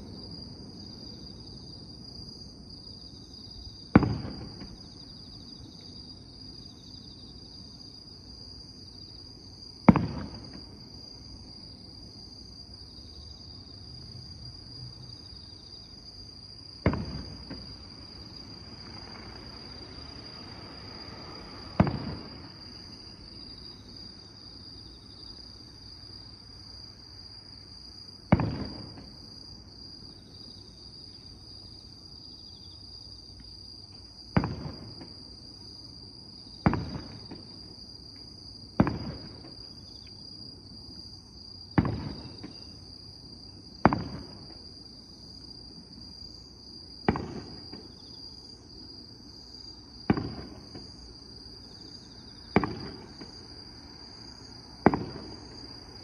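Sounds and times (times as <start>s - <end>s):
insects chirring: 0.0s - 56.0s
distant firework booms: 3.9s - 5.1s, 9.8s - 10.9s, 16.7s - 23.5s, 28.3s - 29.4s, 34.3s - 35.2s, 36.6s - 37.7s, 38.7s - 39.8s, 41.7s - 42.8s, 43.8s - 44.6s, 47.0s - 48.0s, 50.0s - 51.1s, 52.0s - 53.5s, 54.8s - 56.0s.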